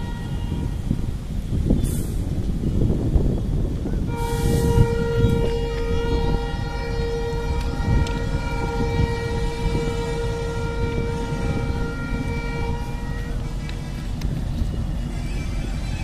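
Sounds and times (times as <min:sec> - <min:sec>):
diesel locomotive engine rumble: 0:00.0 - 0:16.0
steady whining tones: 0:04.2 - 0:16.0.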